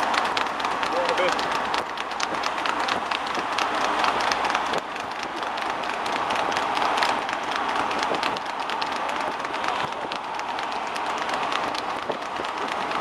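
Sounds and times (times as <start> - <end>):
horse hooves trotting on tarmac: 0.0 - 13.0
sulky wheels: 0.0 - 13.0
traffic noise: 0.0 - 13.0.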